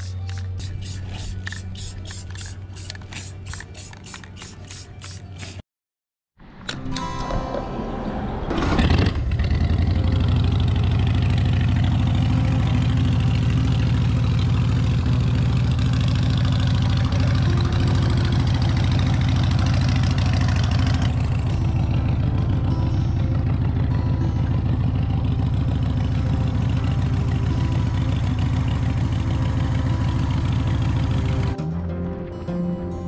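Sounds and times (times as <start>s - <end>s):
motorcycle engine starting and idling: 8.4s - 31.6s.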